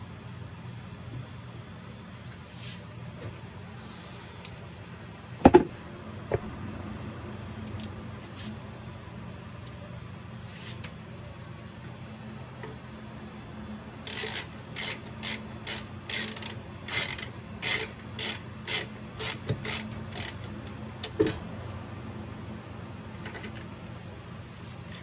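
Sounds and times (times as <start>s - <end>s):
hand ratchet clicking: 14.0s - 20.6s.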